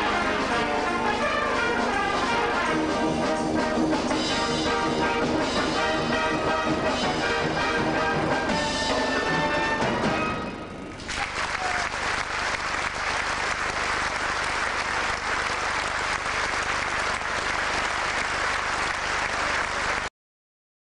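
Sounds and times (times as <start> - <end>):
brass band chord: 0.0 - 10.8
audience applause: 10.9 - 20.1.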